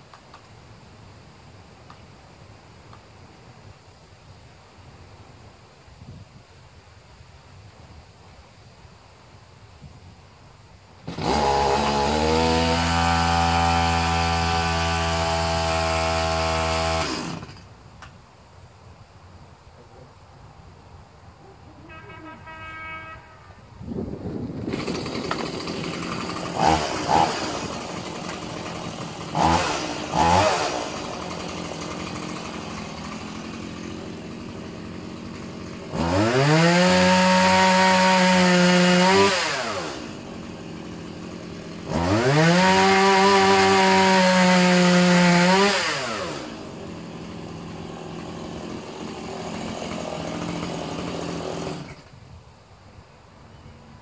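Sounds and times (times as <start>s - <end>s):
chainsaw idling and revving: 11.0s - 17.7s, 24.5s - 52.1s.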